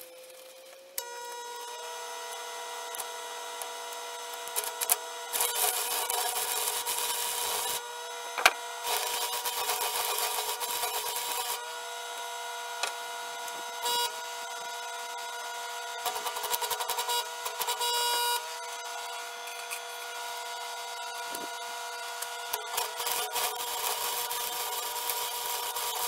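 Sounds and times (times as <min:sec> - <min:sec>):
welding arc crackling and sizzling: 0:00.0 - 0:26.0.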